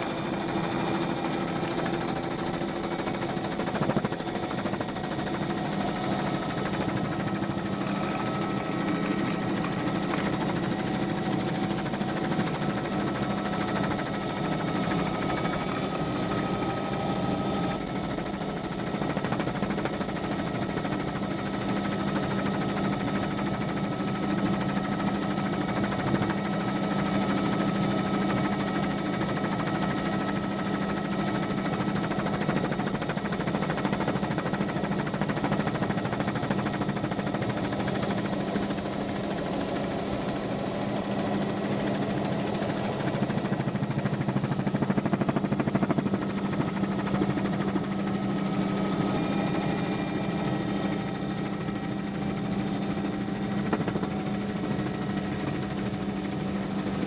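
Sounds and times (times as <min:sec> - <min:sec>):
faint steady whines: 0:00.0 - 0:20.2
aircraft motor and rotor drone: 0:00.0 - 0:57.0.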